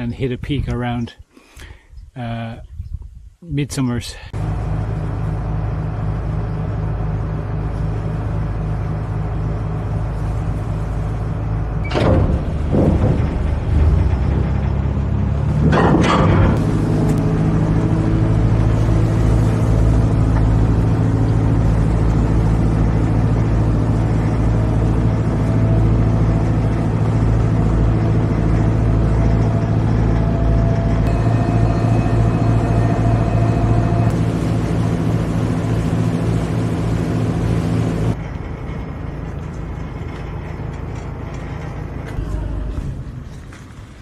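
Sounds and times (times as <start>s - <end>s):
diesel engine drone: 4.2s - 44.0s
faint high whine: 30.2s - 38.2s.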